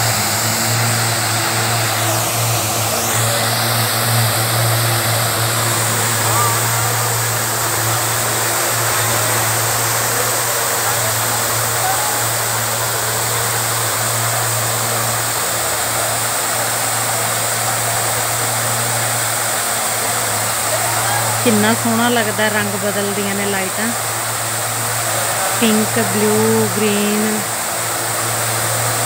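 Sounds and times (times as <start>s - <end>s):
fountain water splashing: 0.0s - 29.0s.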